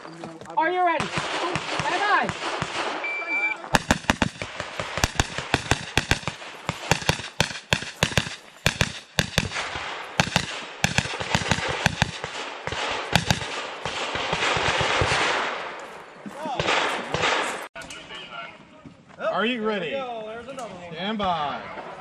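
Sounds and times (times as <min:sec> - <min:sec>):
gunshots: 0:00.9 - 0:15.8, 0:16.4 - 0:17.7.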